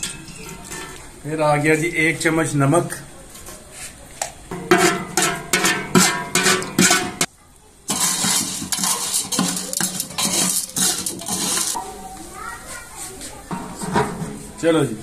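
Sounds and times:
metal spoon stirring in metal pot: 0:00.0 - 0:01.3, 0:04.5 - 0:07.3, 0:07.9 - 0:12.0.

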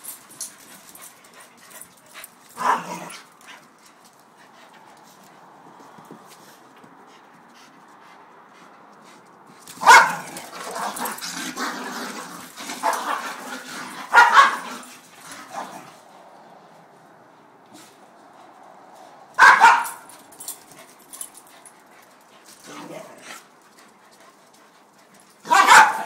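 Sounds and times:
dog barking: 0:02.6 - 0:03.0, 0:09.8 - 0:10.3, 0:14.1 - 0:14.7, 0:19.4 - 0:20.1, 0:25.4 - 0:26.0
dog yipping: 0:09.8 - 0:10.2, 0:14.1 - 0:14.6, 0:19.4 - 0:20.1, 0:25.5 - 0:26.0
dog growling: 0:10.2 - 0:15.9.

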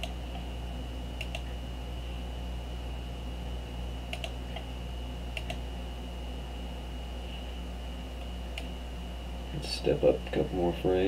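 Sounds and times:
low electrical hum: 0:00.0 - 0:11.0
computer input clicks: 0:01.2 - 0:01.5, 0:04.1 - 0:04.6, 0:05.3 - 0:05.6.

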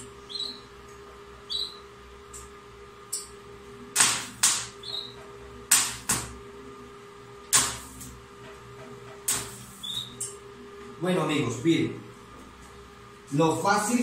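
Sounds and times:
electrical hum: 0:00.0 - 0:14.0
spot welder snaps: 0:03.9 - 0:05.0, 0:05.7 - 0:06.4, 0:07.5 - 0:08.2, 0:09.2 - 0:10.4.

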